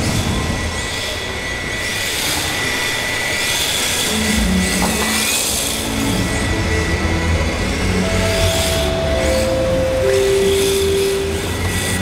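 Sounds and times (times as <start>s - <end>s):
rc car electric motor whining: 0.1s - 7.8s.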